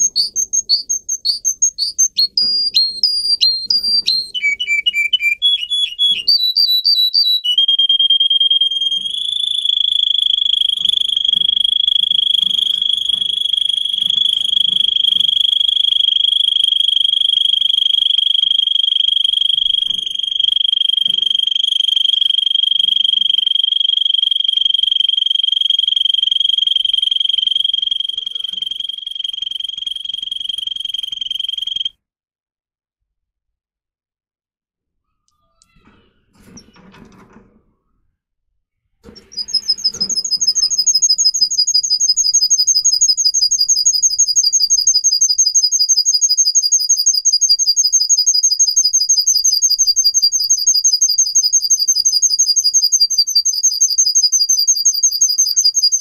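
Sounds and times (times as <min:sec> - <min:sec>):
canary singing trills: 0:00.0 - 0:31.9, 0:39.1 - 0:56.0.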